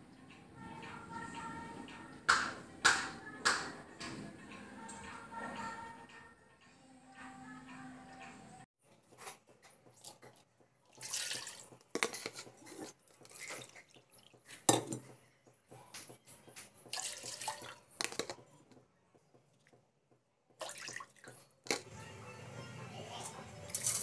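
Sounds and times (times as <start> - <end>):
water splashing into metal pot: 10.9 - 12.1, 16.9 - 17.9, 20.6 - 21.4.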